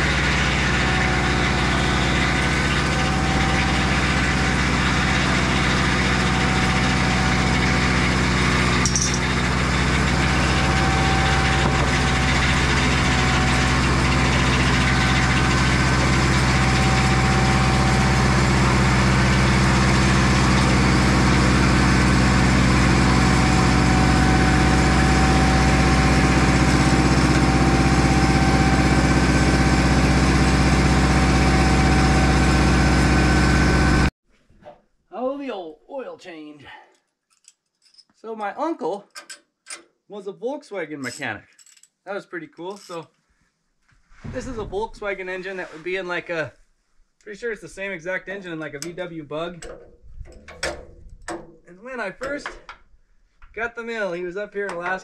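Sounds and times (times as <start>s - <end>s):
sawmill engine running: 0.0s - 34.1s.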